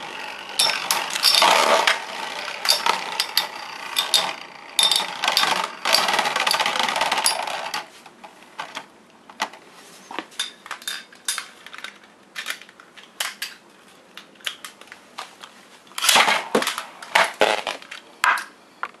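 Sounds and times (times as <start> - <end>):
spinning tops clashing: 0.5 - 7.8.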